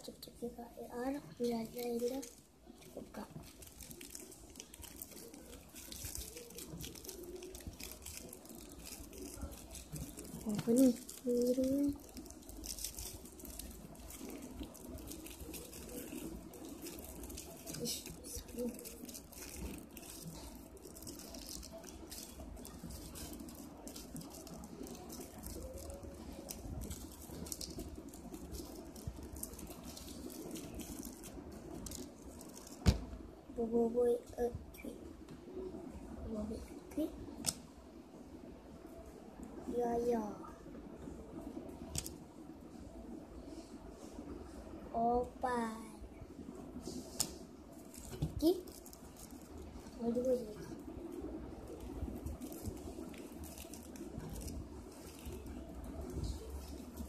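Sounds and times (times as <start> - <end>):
plastic wrapper crinkling: 0.1 - 33.2, 41.8 - 42.2, 46.8 - 57.0.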